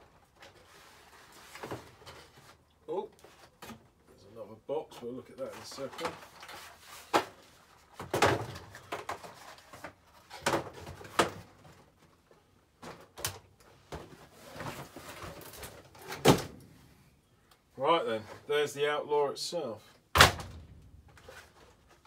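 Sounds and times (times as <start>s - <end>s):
cardboard scraping and rustling: 13.9s - 16.0s, 21.1s - 22.0s.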